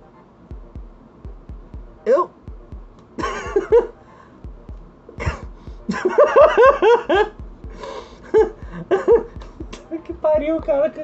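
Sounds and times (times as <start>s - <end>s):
person laughing: 3.2s - 3.9s, 5.2s - 9.9s.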